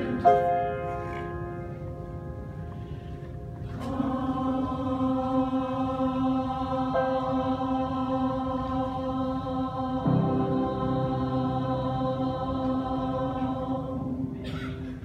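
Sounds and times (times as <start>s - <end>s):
mixed choir singing a hymn: 0.0s - 1.2s, 3.6s - 15.0s.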